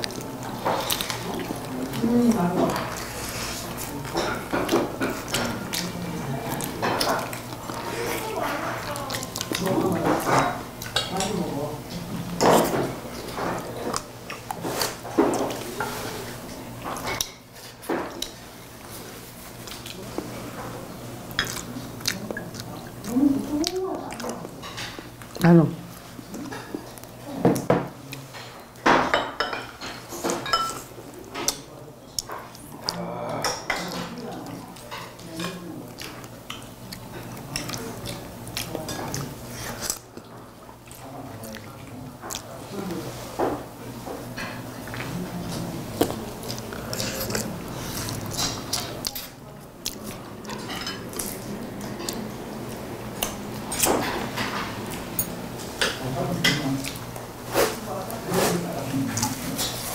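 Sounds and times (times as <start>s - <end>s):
utensils clinking against dishes: 0.0s - 6.0s, 27.6s - 32.5s, 46.5s - 49.4s, 50.1s - 52.3s, 53.3s - 59.9s
cutlery and dishes clinking: 28.3s - 31.6s.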